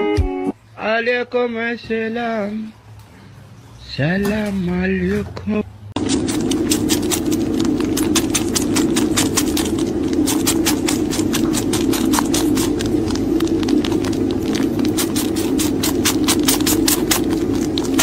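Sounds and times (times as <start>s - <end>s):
kitten purring loudly: 6.2s - 18.0s.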